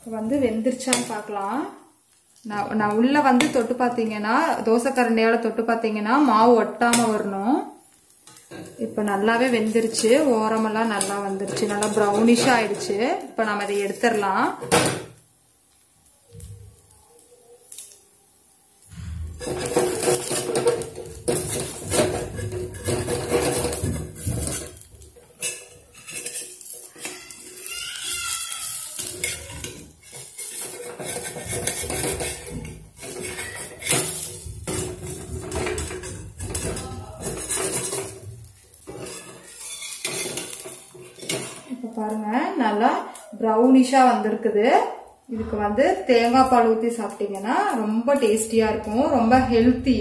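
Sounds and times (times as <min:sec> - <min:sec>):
steel spatula scraping pan: 0:08.2 - 0:13.0, 0:19.0 - 0:41.9.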